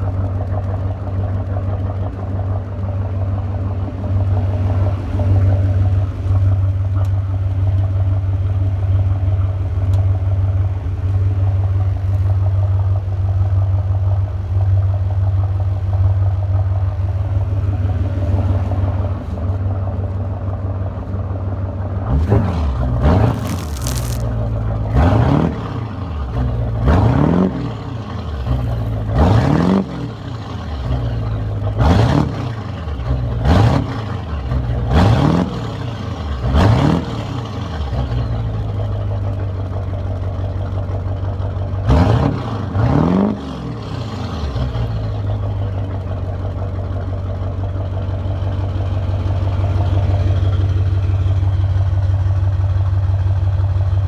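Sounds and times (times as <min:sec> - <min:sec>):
diesel engine revving and idling: 0:00.0 - 0:54.0.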